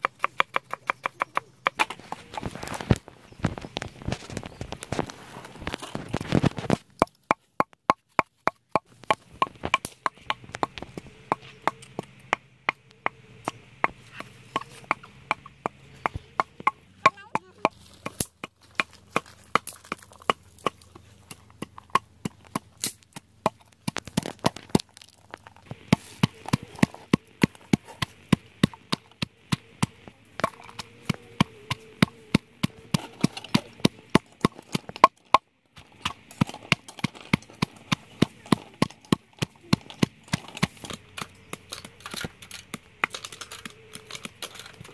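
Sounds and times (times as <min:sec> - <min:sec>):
wooden pestle pounding in mortar: 0:00.0 - 0:02.2, 0:07.0 - 0:24.8.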